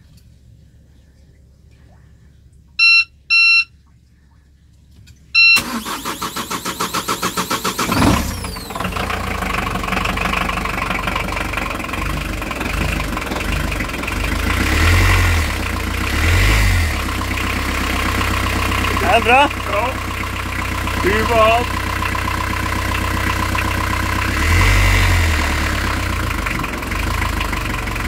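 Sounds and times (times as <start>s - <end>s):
control panel beeps: 2.8s - 3.7s, 5.4s - 5.6s
diesel engine starter cranking: 5.5s - 28.0s
diesel engine idling: 5.6s - 28.0s.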